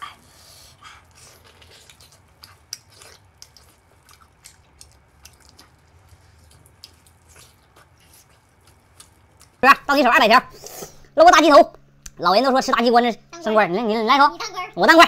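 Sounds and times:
person eating with wet smacks: 1.0s - 9.7s.

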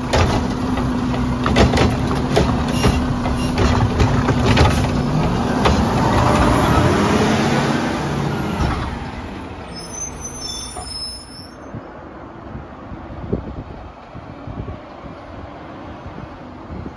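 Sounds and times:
diesel truck engine revving: 0.0s - 10.0s.

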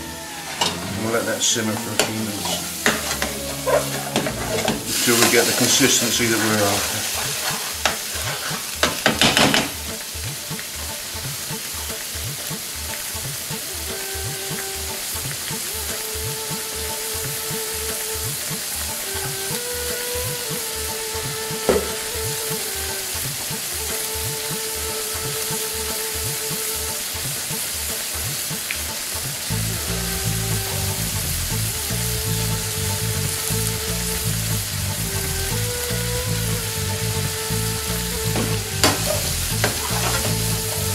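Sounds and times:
sauce simmering with popping bubbles: 2.4s - 20.8s.

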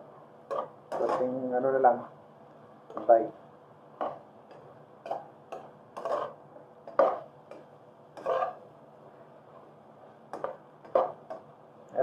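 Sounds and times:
spatula scraping a frying pan: 0.4s - 2.2s, 3.9s - 11.5s.

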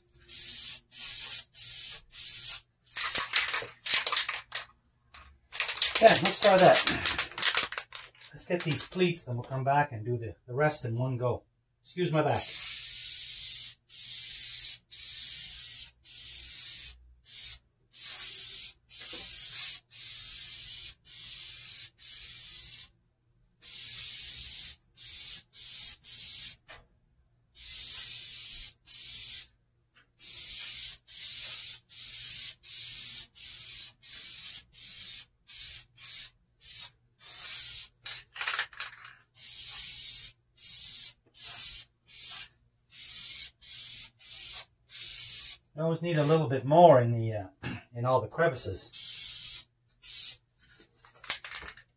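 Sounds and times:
spray can hissing bursts: 0.2s - 4.6s, 5.6s - 8.9s, 12.4s - 22.9s, 23.6s - 26.6s, 27.6s - 29.5s, 30.2s - 38.0s, 39.4s - 45.6s, 48.9s - 50.4s.

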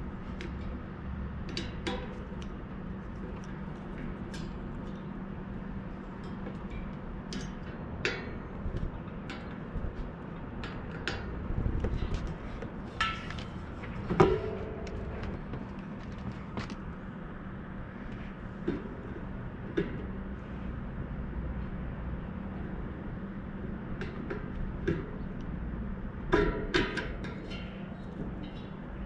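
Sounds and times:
low hum: 0.0s - 29.0s
metal clank ringing: 13.0s - 15.3s.

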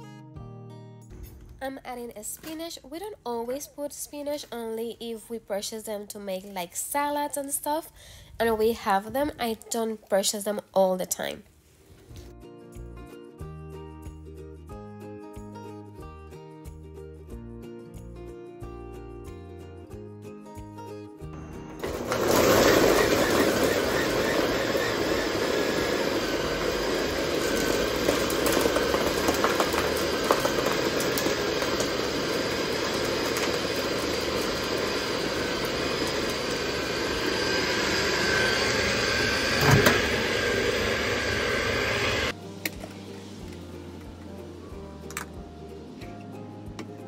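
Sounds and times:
blender motor chopping vegetables: 21.7s - 42.3s.

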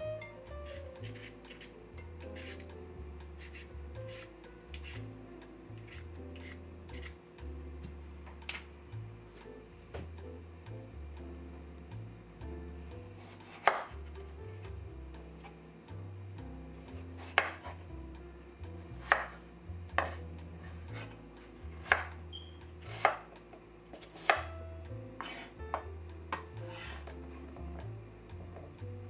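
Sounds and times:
soft background music: 0.0s - 29.0s
knife chopping on wooden board: 0.6s - 1.7s, 2.3s - 2.7s, 3.4s - 5.1s, 5.8s - 7.2s, 13.2s - 14.1s, 16.9s - 17.8s, 19.0s - 19.4s, 20.0s - 21.2s, 21.8s - 22.2s, 22.8s - 24.6s, 25.2s - 27.2s.

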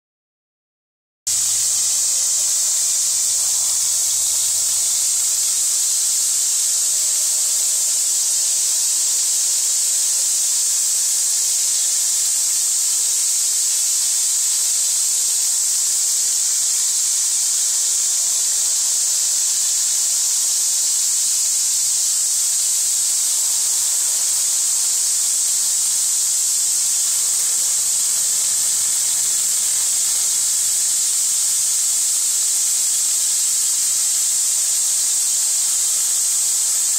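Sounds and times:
hose spraying water into tub: 22.0s - 36.9s.

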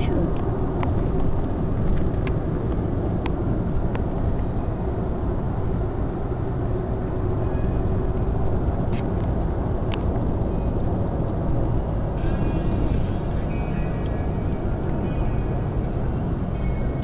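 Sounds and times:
car cabin rumble: 0.0s - 17.0s.

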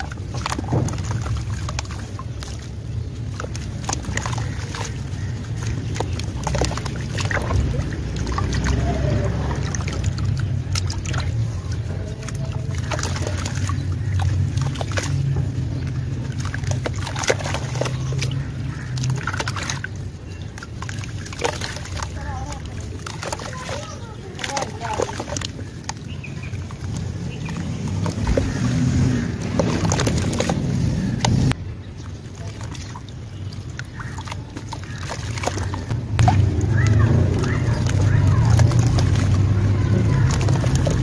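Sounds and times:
clumps splashing into paste: 0.0s - 31.6s, 32.2s - 41.0s
dry dirt crumbling: 0.0s - 41.0s
steady low rumble: 35.7s - 41.0s.

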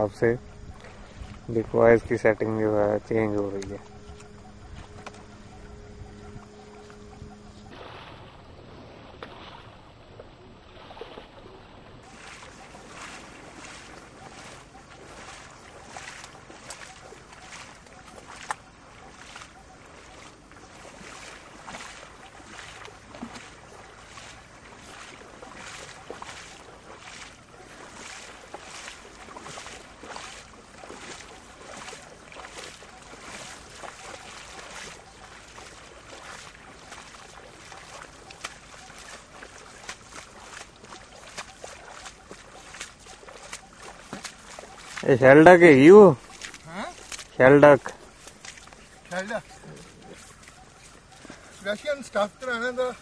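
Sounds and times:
footsteps splashing through water: 0.0s - 53.0s.

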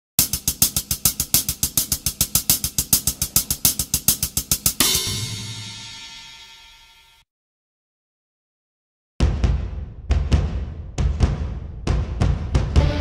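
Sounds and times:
rapid drum beat: 0.2s - 6.8s, 9.2s - 13.0s
cymbal crash ringing: 0.2s - 7.2s.

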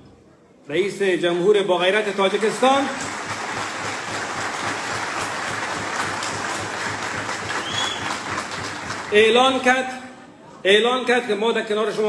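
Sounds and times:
audience clapping: 1.8s - 9.7s.

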